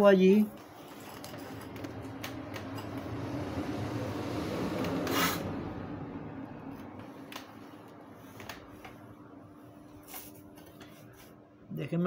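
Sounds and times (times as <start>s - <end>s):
short scrape: 4.9s - 5.6s.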